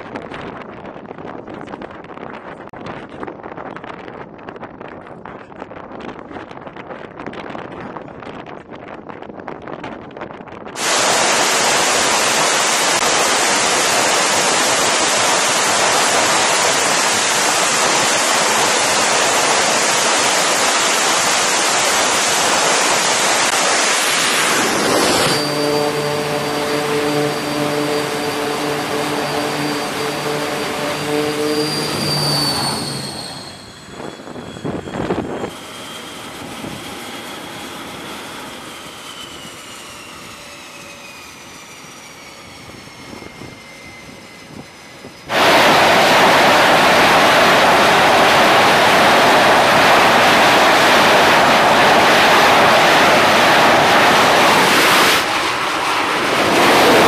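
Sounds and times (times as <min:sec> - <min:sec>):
jet engine humming and whining: 0:06.7 - 0:57.0
jet engine at full power: 0:10.8 - 0:57.0
jet engine idling with whine: 0:10.8 - 0:57.0.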